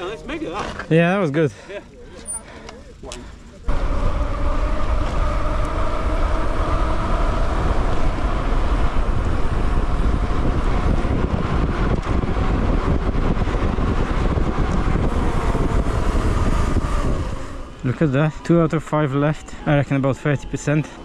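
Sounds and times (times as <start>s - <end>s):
tyres humming on tarmac: 0.0s - 21.0s
wind on microphone: 3.7s - 18.4s.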